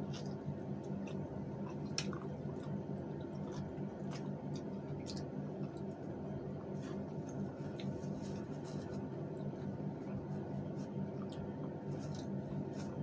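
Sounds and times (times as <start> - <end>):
soft chewing: 0.0 - 13.0
steady low hum: 0.0 - 13.0.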